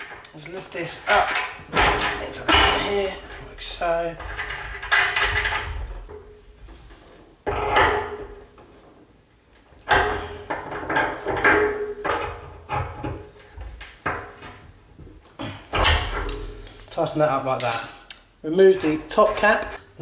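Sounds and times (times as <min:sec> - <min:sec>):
pliers scraping and clicking on metal: 0:17.6 - 0:18.2.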